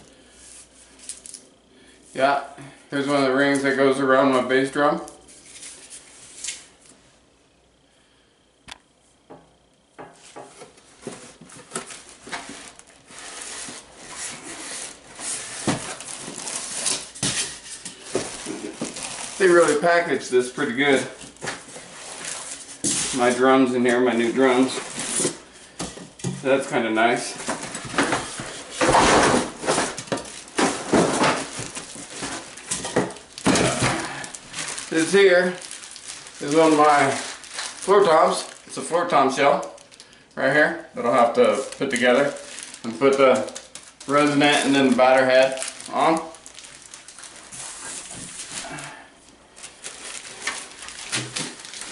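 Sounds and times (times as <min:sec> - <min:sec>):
cardboard box and foam rustling: 0:10.5 - 0:39.8, 0:41.0 - 0:51.9.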